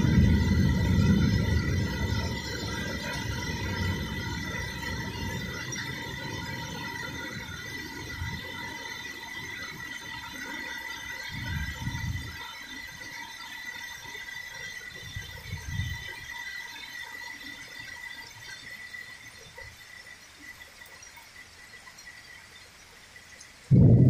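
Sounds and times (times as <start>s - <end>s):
low rumbles: 0.0s - 8.5s, 23.7s - 24.0s
high-pitched whine: 0.0s - 24.0s.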